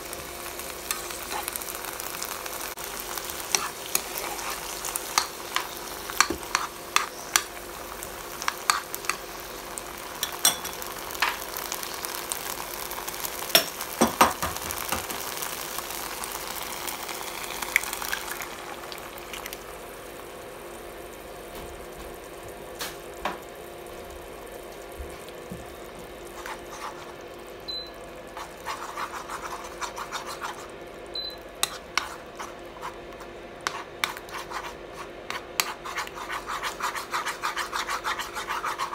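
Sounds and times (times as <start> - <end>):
vegetables sizzling in hot oil: 0.0 - 34.0
spatula scraping a pan: 3.5 - 7.4, 26.3 - 27.2, 28.4 - 30.7, 31.6 - 33.0, 33.6 - 38.9.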